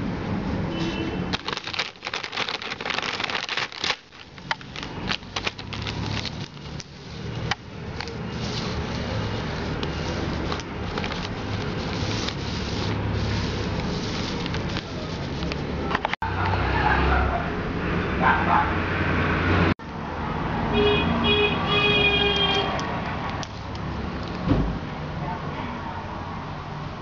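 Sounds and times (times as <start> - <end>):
plastic bag crinkling: 1.3 - 15.5.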